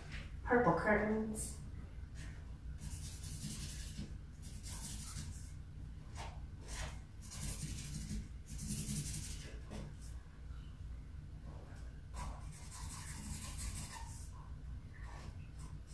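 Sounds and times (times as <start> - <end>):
felt-tip marker scratching on paper: 2.8 - 5.4, 6.7 - 9.5, 12.2 - 14.3.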